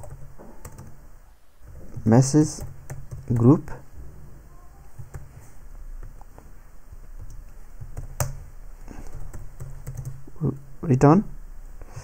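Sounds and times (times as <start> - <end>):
computer keyboard typing: 0.0 - 1.0, 1.6 - 3.6, 4.9 - 5.4, 7.2 - 10.3.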